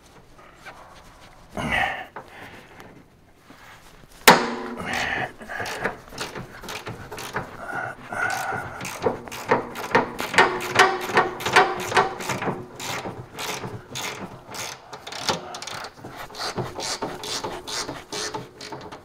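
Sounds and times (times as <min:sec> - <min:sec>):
hand tools clicking and scraping: 0:00.0 - 0:19.0
metal clank: 0:04.2 - 0:07.6, 0:08.9 - 0:14.4.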